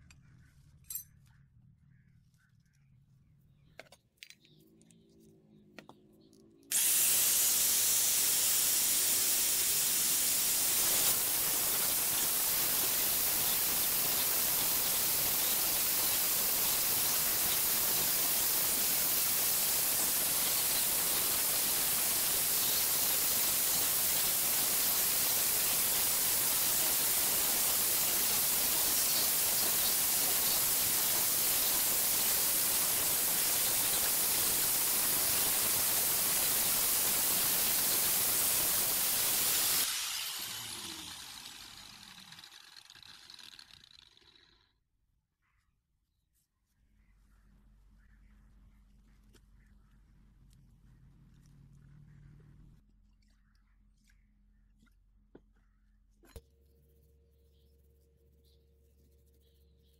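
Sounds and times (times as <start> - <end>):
angle grinder grinding steel: 6.7 - 44.7.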